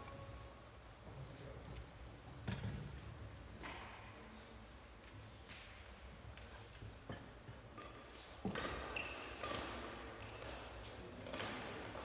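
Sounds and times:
shuttlecock hit by rackets: 0:07.8 - 0:10.4, 0:11.3 - 0:12.0.

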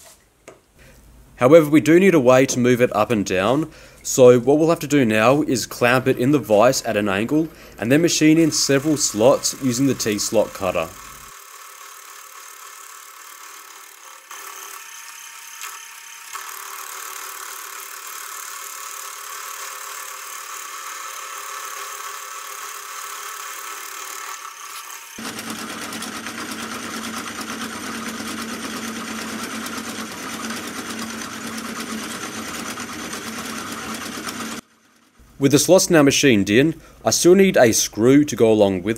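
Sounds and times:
milling machine cutting metal: 0:07.3 - 0:34.6.

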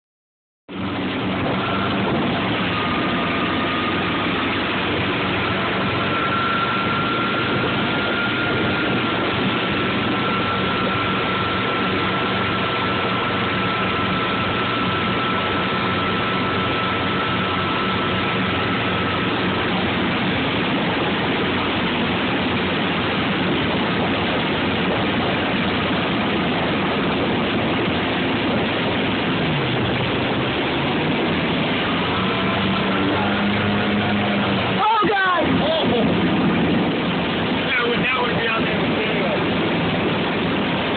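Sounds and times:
motorboat engine running: 0:00.7 - 0:40.9
water rushing from wake: 0:00.7 - 0:40.9
thin high whine: 0:00.8 - 0:21.5, 0:30.5 - 0:36.0.

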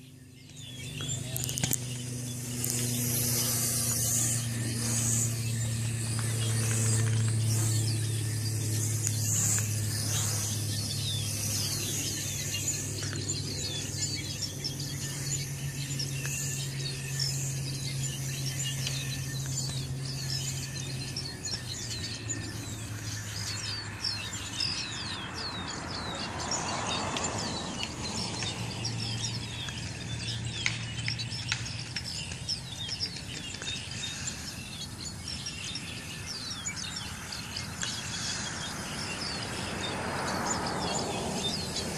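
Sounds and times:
low hum: 0:00.0 - 0:24.4
small birds chirping: 0:00.0 - 0:41.9.

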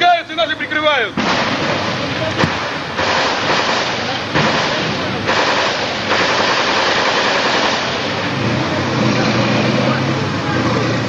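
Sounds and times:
automatic gunfire bursts: 0:02.9 - 0:08.2.

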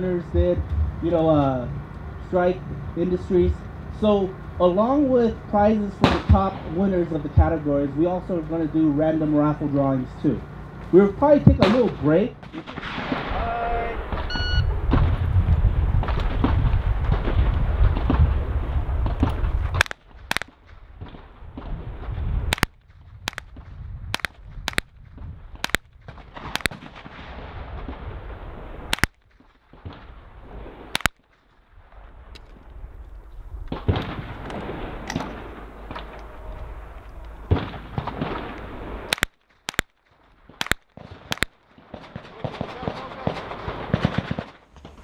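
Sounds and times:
rifle shots: 0:06.0 - 0:07.0, 0:11.5 - 0:13.4, 0:19.0 - 0:21.8, 0:22.5 - 0:31.4, 0:33.7 - 0:36.2, 0:37.5 - 0:45.0.

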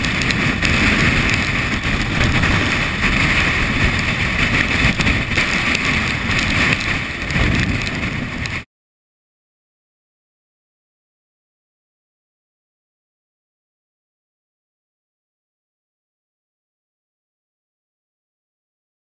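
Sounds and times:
wind buffeting microphone: 0:00.0 - 0:08.7.

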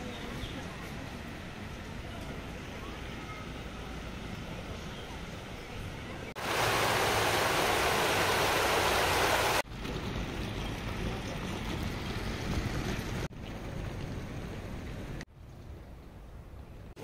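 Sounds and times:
water rushing down cascade: 0:06.4 - 0:12.5.

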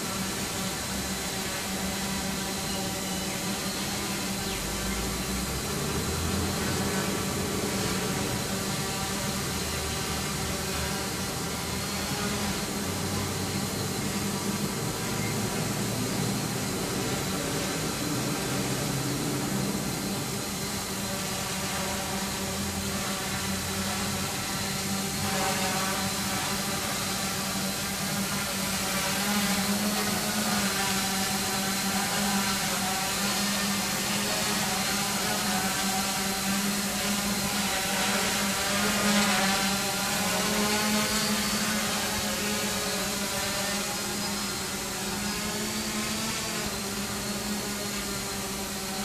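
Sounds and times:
quadcopter buzzing: 0:00.0 - 0:49.0.

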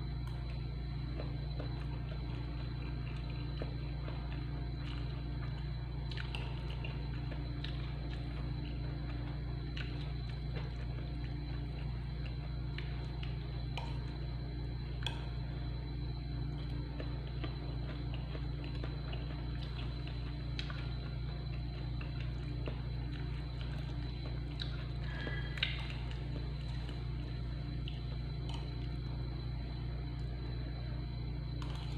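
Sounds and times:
low hum: 0:00.0 - 0:31.9.

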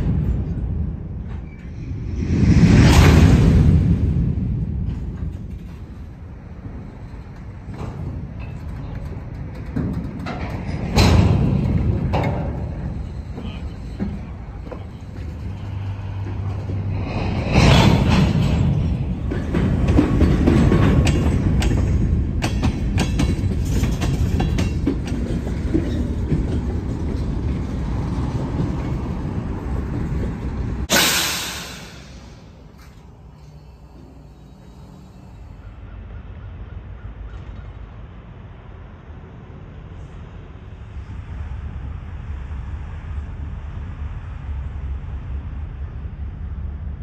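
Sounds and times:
train wheels rumbling on rail: 0:00.0 - 0:47.0
wheels clacking over track: 0:04.8 - 0:34.3.

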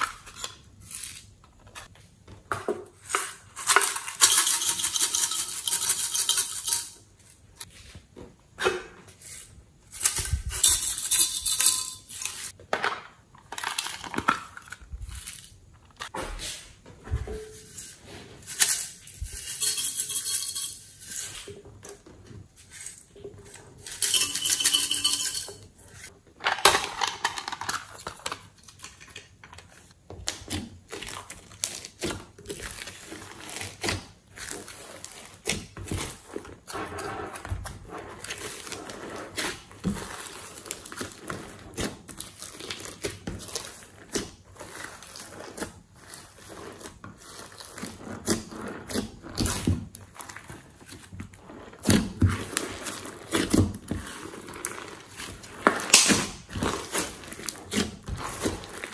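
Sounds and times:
hands kneading sticky slime: 0:29.7 - 0:58.9.

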